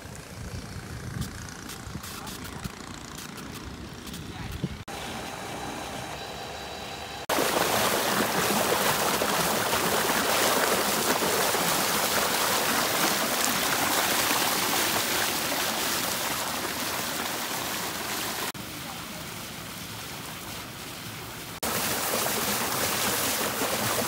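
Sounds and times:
water gushing and splashing: 0:07.2 - 0:24.0.

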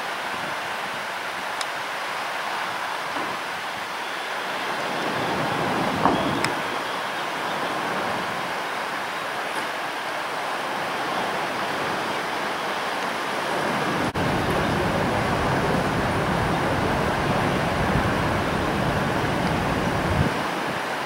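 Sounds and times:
wind blowing on microphone: 0:04.6 - 0:08.6, 0:13.6 - 0:21.0.

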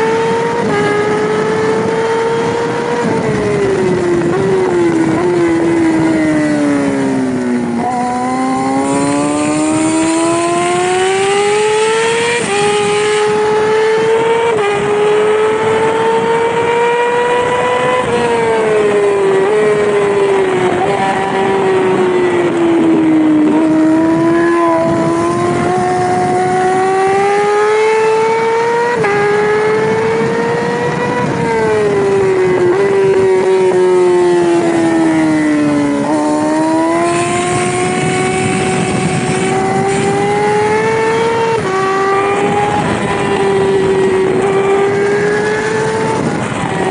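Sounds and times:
race bike engine accelerating: 0:00.0 - 0:46.9.

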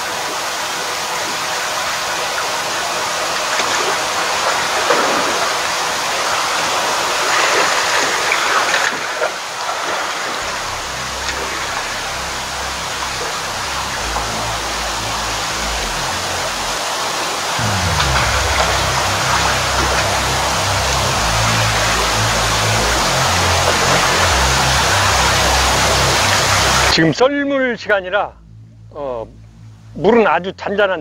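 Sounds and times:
seawater washing and gurgling: 0:02.4 - 0:27.0
background music with low notes: 0:10.4 - 0:31.0.

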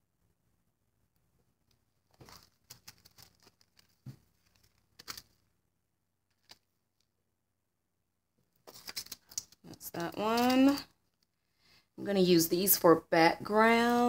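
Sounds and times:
plastic sheets crinkling: 0:01.7 - 0:05.5, 0:06.2 - 0:06.8, 0:08.6 - 0:11.3.

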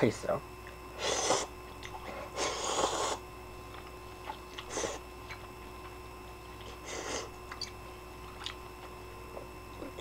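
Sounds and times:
chewing clicks: 0:07.4 - 0:09.0.

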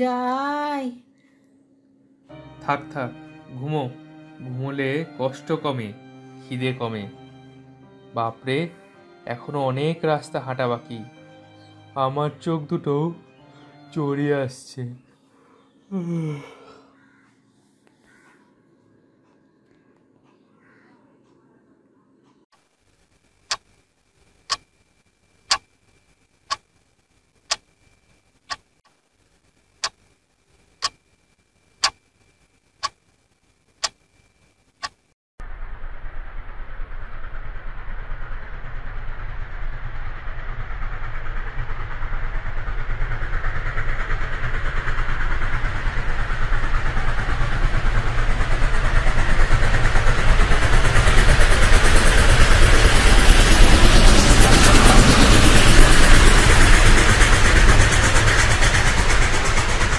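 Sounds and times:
clock ticking: 0:25.5 - 0:25.7
approaching train: 0:35.5 - 0:59.9.

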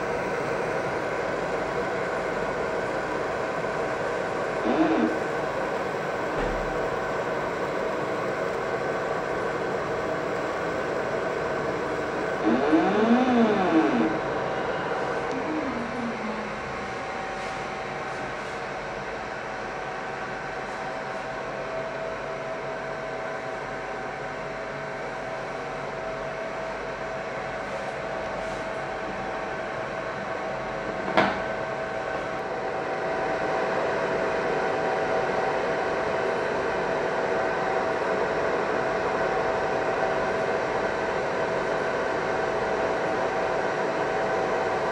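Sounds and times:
faint steady whine: 0:00.0 - 0:17.4
fan whirring: 0:00.0 - 0:25.7
laser machine hum and whine: 0:00.0 - 0:44.9
motor whine: 0:04.6 - 0:05.3, 0:12.4 - 0:16.8.

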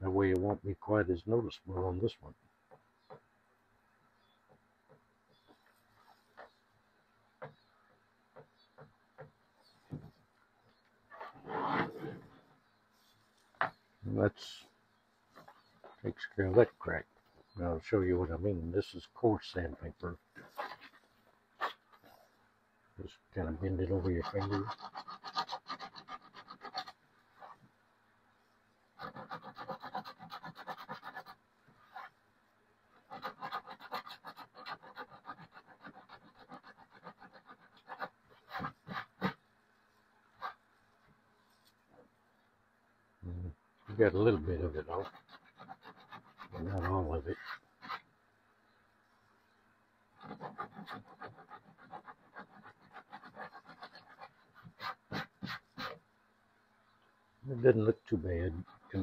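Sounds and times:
sandpaper rubbing on plastic: 0:23.7 - 0:27.6, 0:29.0 - 0:32.2, 0:33.0 - 0:40.6, 0:44.0 - 0:48.0, 0:50.2 - 0:56.0, 0:58.4 - 0:59.0.

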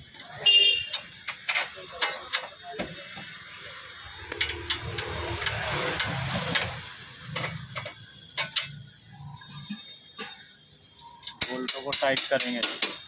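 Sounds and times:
metal clicks and taps of bolts: 0:00.9 - 0:02.9, 0:04.2 - 0:06.7, 0:07.4 - 0:08.8, 0:11.2 - 0:13.0.

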